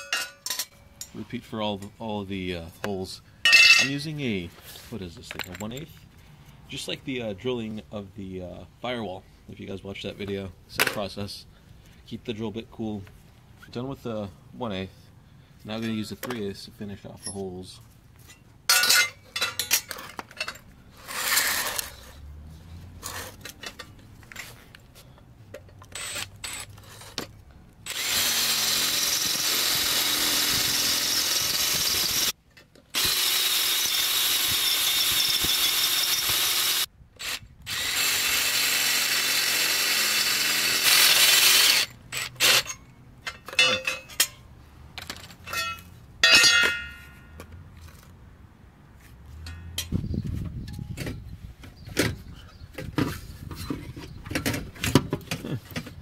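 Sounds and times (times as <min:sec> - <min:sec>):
metal parts clinking: 0:00.0 - 0:01.1, 0:03.5 - 0:04.0, 0:05.3 - 0:06.0, 0:18.2 - 0:22.0, 0:41.7 - 0:44.4, 0:45.0 - 0:47.4
power drill boring into steel: 0:27.9 - 0:32.3, 0:33.0 - 0:42.6.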